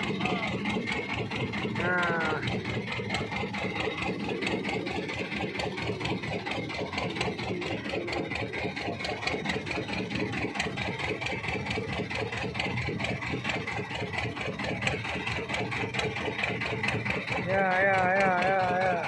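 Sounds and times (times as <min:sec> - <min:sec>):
boat engine chugging: 0:00.0 - 0:19.0.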